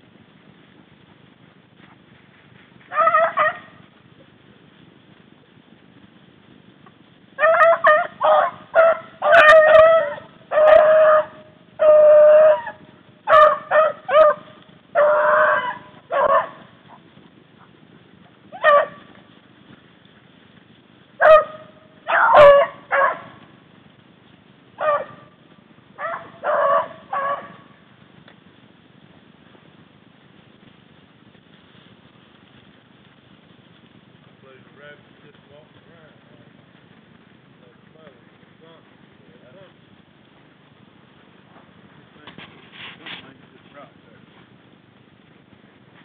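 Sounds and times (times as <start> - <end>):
hounds baying and yelping: 2.8 - 4.0, 7.4 - 19.3, 21.2 - 23.6, 24.8 - 27.9.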